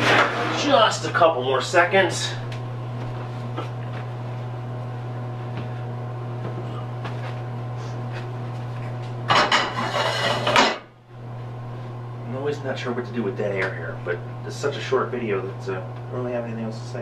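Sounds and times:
steady low hum: 0.0s - 17.0s
metal cookware clattering: 9.3s - 10.8s.

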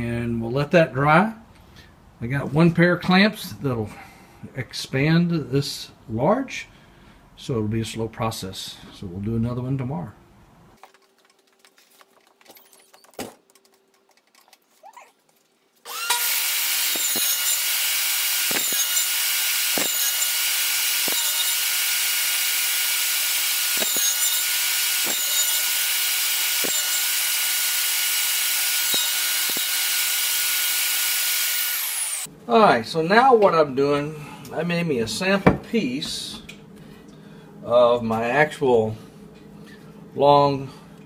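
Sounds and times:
table saw running: 15.9s - 32.3s.

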